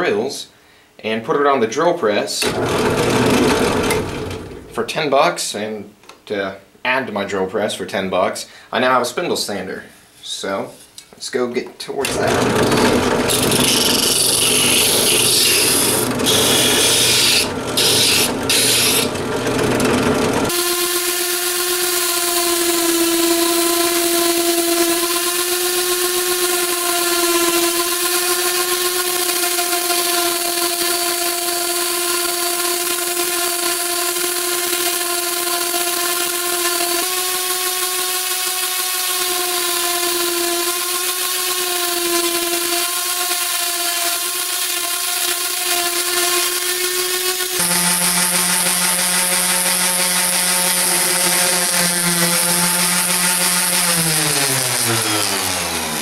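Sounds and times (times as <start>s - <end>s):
drum sander grinding wood: 2.4s - 4.7s, 12.0s - 56.0s
orbital sander whine: 12.1s - 56.0s.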